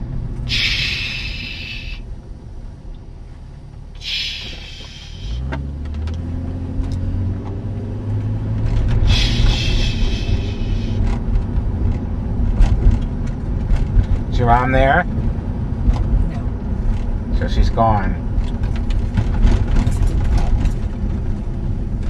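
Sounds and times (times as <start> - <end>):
car engine: 0.0 - 22.0
road noise: 0.0 - 22.0
hiss: 0.5 - 2.0, 4.0 - 5.4, 9.0 - 11.1.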